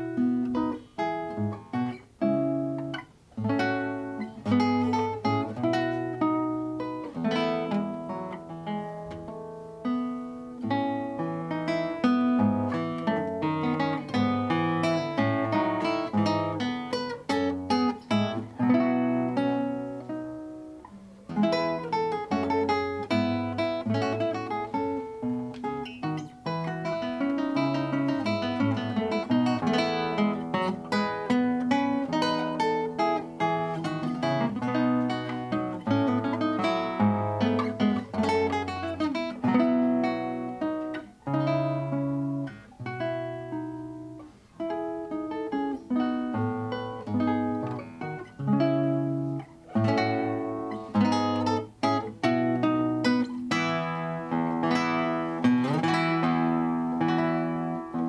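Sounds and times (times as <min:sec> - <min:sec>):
classical guitar fingerstyle melody: 0:00.0 - 0:58.0.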